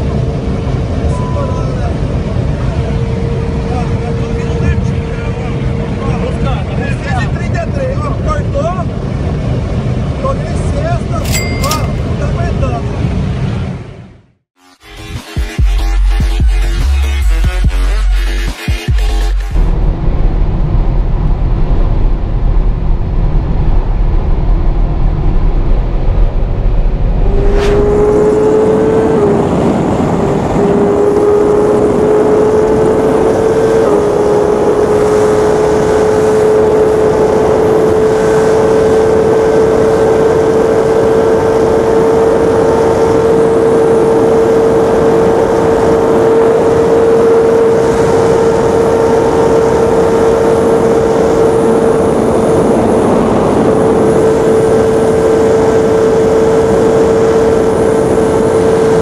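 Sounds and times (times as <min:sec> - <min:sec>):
heavy wind noise: 0:00.0 - 0:14.2, 0:19.6 - 0:59.0
motorcycle engine at high revs: 0:27.1 - 0:59.0.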